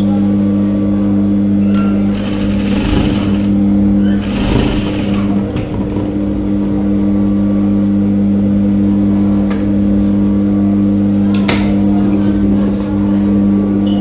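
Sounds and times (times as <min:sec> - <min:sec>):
sewing machine motor humming: 0:02.1 - 0:06.2.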